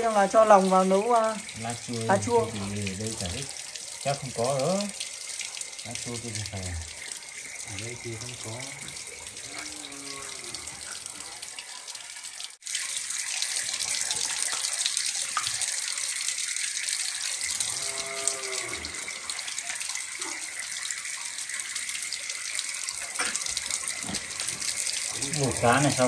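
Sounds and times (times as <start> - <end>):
water running and splashing: 0.0 - 26.0.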